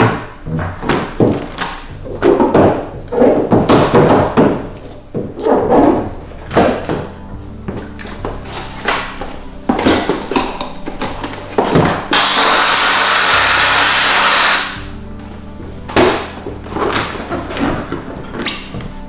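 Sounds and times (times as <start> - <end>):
background music with steady beat: 0.0 - 19.0
steam cleaner hissing: 12.1 - 14.8.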